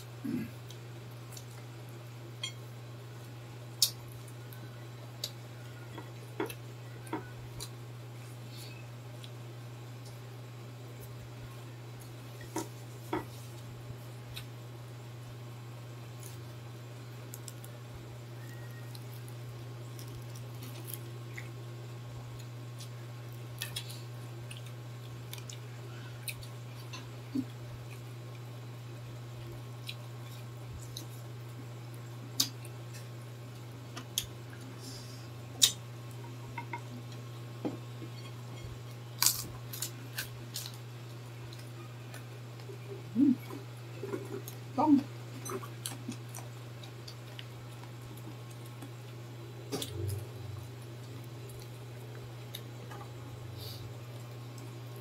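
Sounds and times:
people chewing crispy food: 0:00.2 - 0:02.1, 0:16.0 - 0:21.6, 0:22.2 - 0:36.2, 0:38.0 - 0:55.0.

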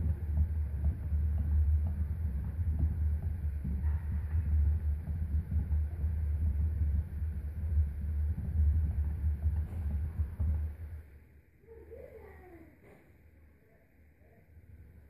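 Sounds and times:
hamster running in exercise wheel: 0:00.0 - 0:11.1.

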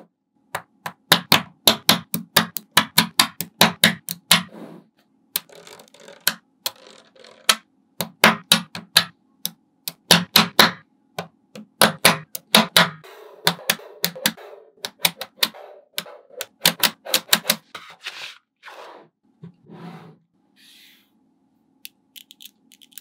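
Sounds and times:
magnetic balls clicking together: 0:05.3 - 0:10.7
magnetic balls rattling: 0:05.4 - 0:07.6.

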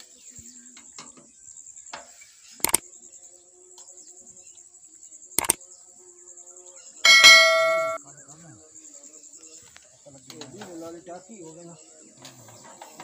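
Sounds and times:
crickets chirping: 0:00.0 - 0:13.0
mouse-click sound effects: 0:02.6 - 0:02.8
bell-like chime: 0:07.1 - 0:08.0.

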